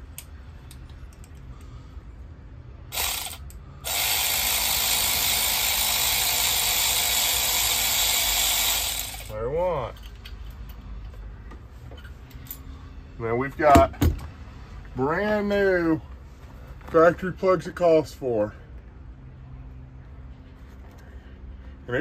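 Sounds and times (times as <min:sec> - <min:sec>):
electric ratchet running: 0:02.9 - 0:09.3.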